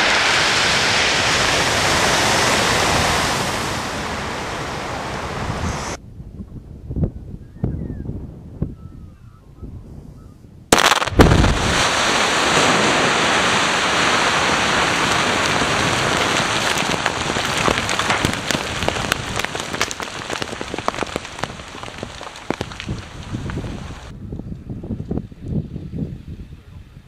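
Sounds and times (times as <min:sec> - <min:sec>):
explosive blast crack and boom: 0:10.7 - 0:23.7
falling rock debris clatter: 0:10.8 - 0:24.1.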